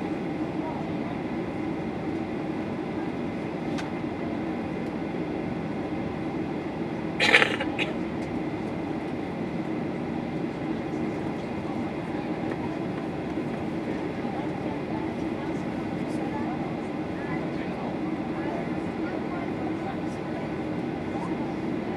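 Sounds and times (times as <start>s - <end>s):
aircraft cabin rumble: 0.0s - 21.9s.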